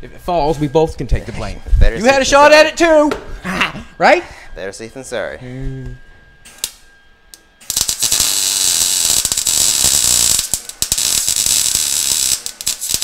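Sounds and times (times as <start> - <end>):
welder crackling hiss: 7.4 - 13.0.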